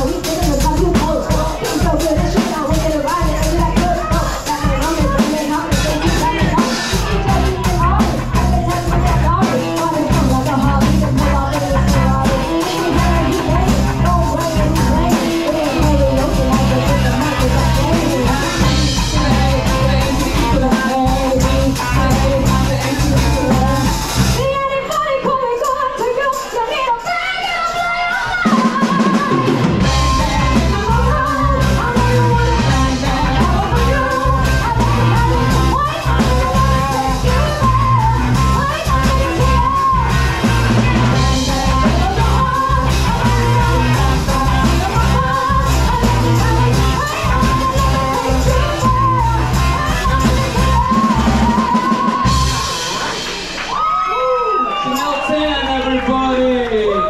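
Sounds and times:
woman singing: 0.0 - 53.2
rock band playing: 0.0 - 57.0.

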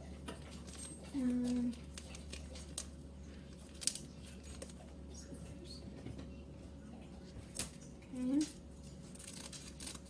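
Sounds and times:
paper packet crinkling: 0.8 - 4.9, 8.8 - 10.0.

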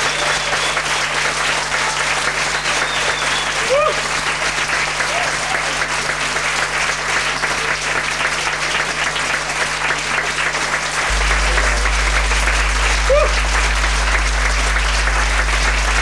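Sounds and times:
audience applauding: 0.0 - 16.0
low hum: 11.0 - 16.0.

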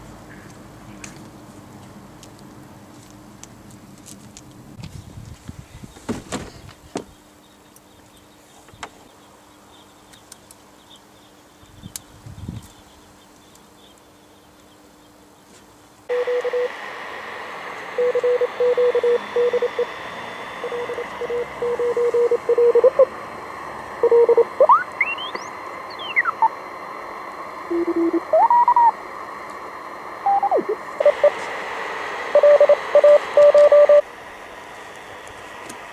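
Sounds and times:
morse code tone: 16.1 - 16.8, 17.9 - 23.1, 24.0 - 26.5, 27.7 - 29.0, 30.2 - 31.4, 32.3 - 34.0
radio receiver hiss: 16.1 - 35.9.

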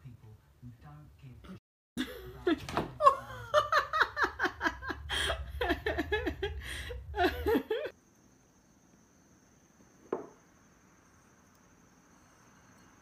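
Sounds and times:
person laughing hard: 2.0 - 7.9.

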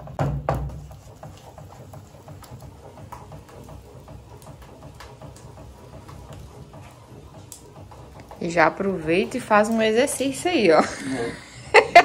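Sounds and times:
sharp knocks: 0.0 - 1.0
faint clicks and ticks: 0.9 - 10.7.

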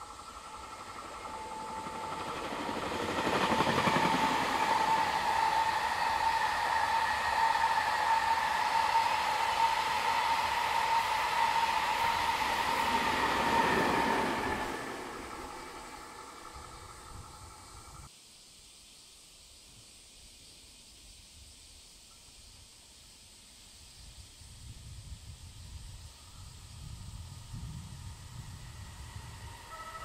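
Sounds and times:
steady high whine: 0.0 - 18.1
train passing: 0.0 - 18.1, 26.3 - 30.0.

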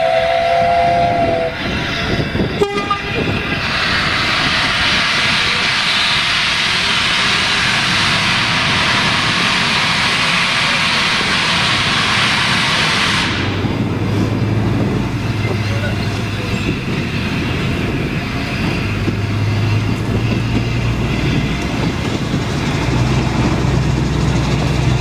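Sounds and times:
locomotive horn chord: 0.0 - 1.5, 2.6 - 3.2
loud steady rushing hiss: 3.4 - 14.6.

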